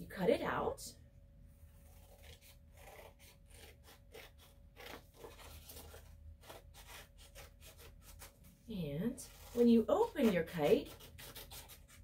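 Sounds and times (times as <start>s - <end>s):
scissors snipping paper: 1.8s - 8.4s, 9.2s - 12.0s.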